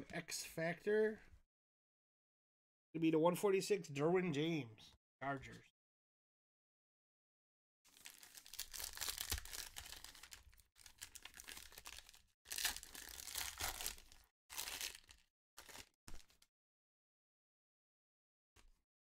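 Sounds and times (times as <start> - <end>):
foil wrapper crinkling: 7.9 - 16.4.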